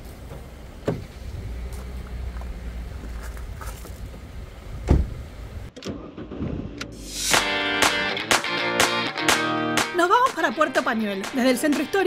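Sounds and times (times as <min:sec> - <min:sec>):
car engine rumbling: 0:00.0 - 0:07.3.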